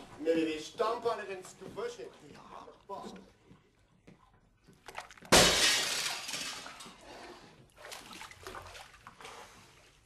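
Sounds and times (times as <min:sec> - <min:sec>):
glass smashing: 0:05.3 - 0:06.8.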